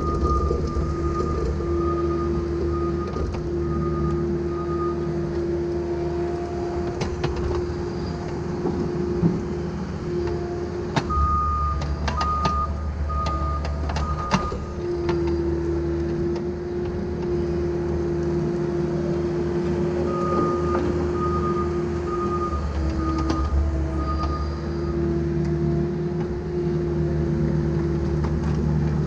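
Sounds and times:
backup alarm beeping: 0.0s - 5.1s, 11.0s - 15.4s, 19.5s - 25.0s
excavator diesel engine: 0.0s - 29.0s
hydraulic whine: 0.0s - 29.0s.

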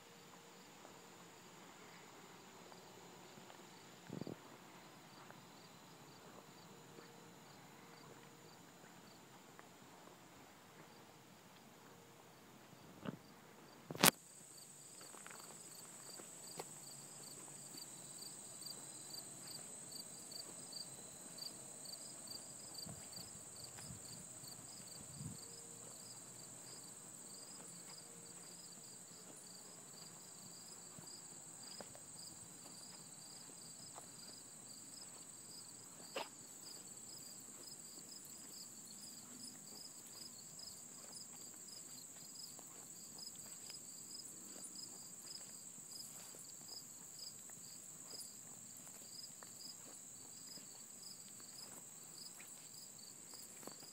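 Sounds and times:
cricket-like chirp: 13.2s - 53.9s
insects droning high-pitched: 14.0s - 53.9s.

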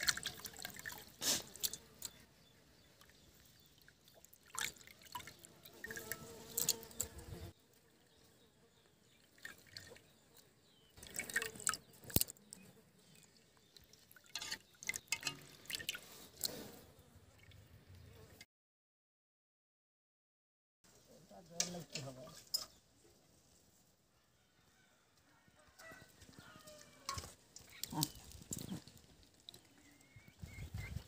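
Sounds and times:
water dripping and trickling: 0.0s - 2.2s, 3.0s - 7.1s, 9.2s - 10.2s, 11.0s - 16.5s, 26.7s - 31.0s
water sloshing in metal pan: 13.8s - 16.5s.

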